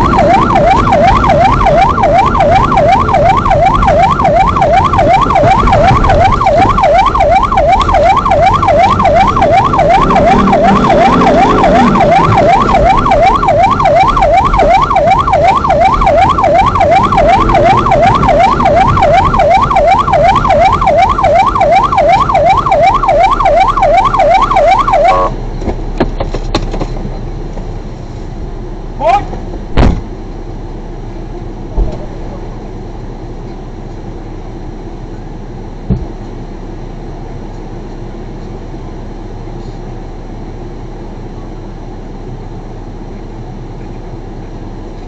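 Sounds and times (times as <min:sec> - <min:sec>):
fast yelp siren: 0:00.0 - 0:25.4
car engine and tyre rumble: 0:00.0 - 0:45.0.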